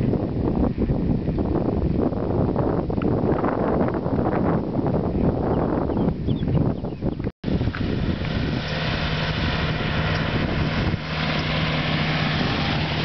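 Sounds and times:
wind rumbling on microphone: 0.0s - 13.0s
road noise: 7.4s - 13.0s
road train engine humming: 7.5s - 13.0s.

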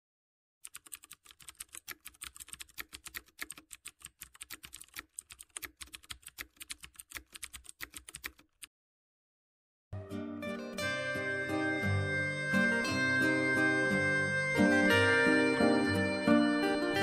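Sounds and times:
rapid typing on a keyboard: 0.6s - 8.7s.

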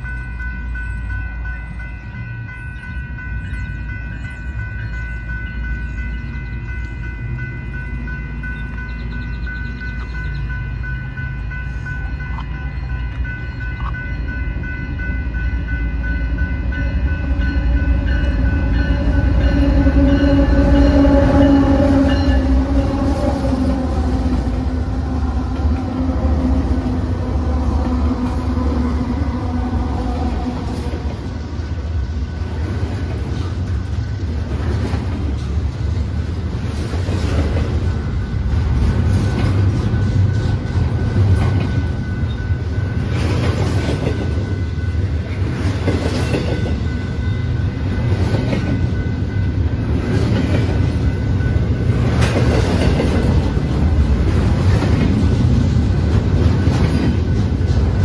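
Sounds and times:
crossing bell ringing: 0.0s - 58.0s
freight cars rumbling over rails: 0.0s - 58.0s
locomotive horn: 16.6s - 31.3s.

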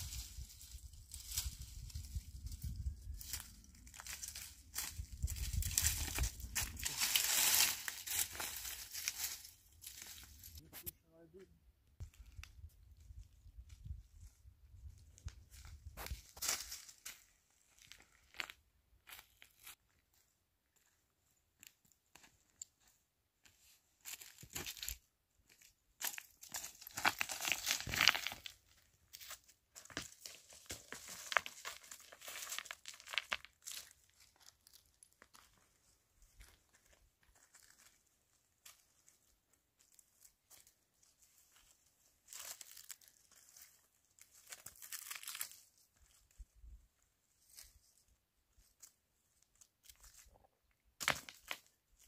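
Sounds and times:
footsteps crunching on dry leaves: 0.0s - 10.6s, 40.5s - 45.6s.

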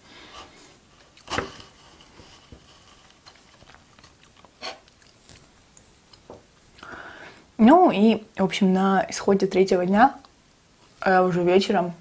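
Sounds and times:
knife crunching through halva: 0.9s - 5.6s.

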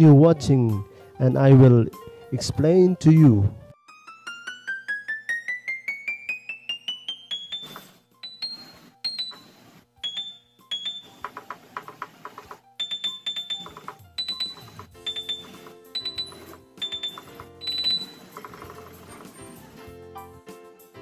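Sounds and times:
electronic keyboard single notes: 12.8s - 19.0s.

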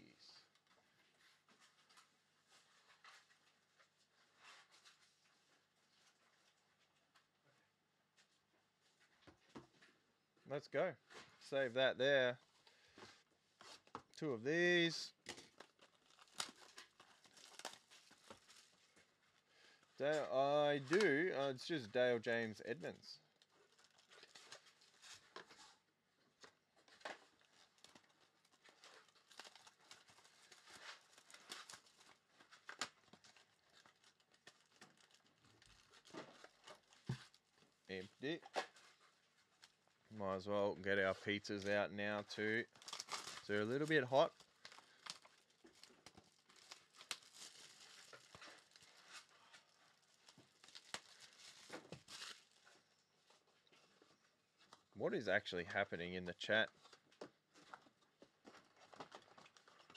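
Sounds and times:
plastic wrap and cardboard tearing: 15.3s - 19.3s, 23.3s - 39.9s, 42.6s - 53.2s, 57.6s - 59.9s.

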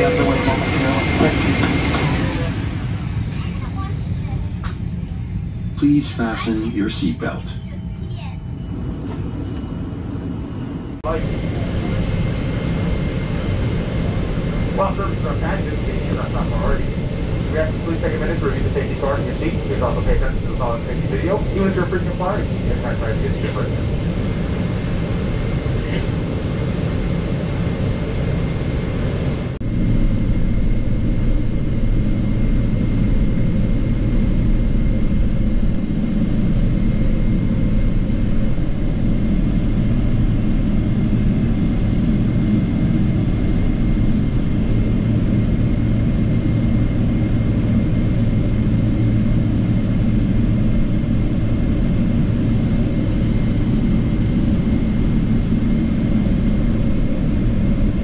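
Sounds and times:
high engine whine: 0.0s - 58.0s
jet engines rumbling in cabin: 0.0s - 58.0s.

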